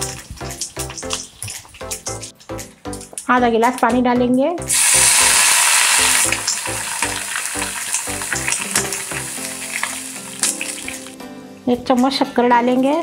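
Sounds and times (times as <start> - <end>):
water sizzling in hot oil: 0.0 - 2.3, 4.7 - 11.2
background music with steady beat: 0.0 - 13.0.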